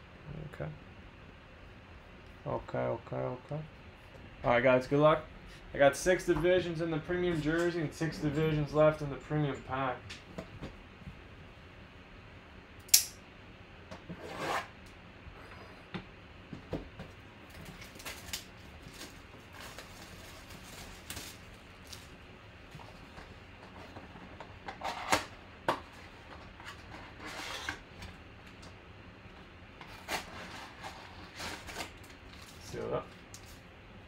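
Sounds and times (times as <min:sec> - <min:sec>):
plastic wrap and cardboard rustling: 0:17.4 - 0:24.9, 0:29.9 - 0:33.7.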